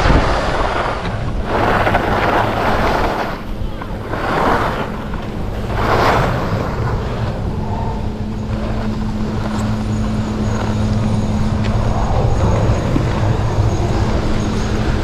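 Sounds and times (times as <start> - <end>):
ski swoosh: 0.0 - 9.6
skis scraping on snow: 0.0 - 15.0
steady low hum: 0.0 - 15.0.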